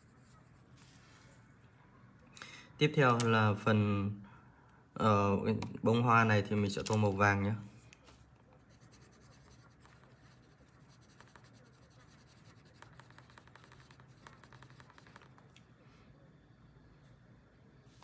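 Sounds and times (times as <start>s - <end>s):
pencil scratching on paper: 0.0s - 1.1s, 8.5s - 15.4s.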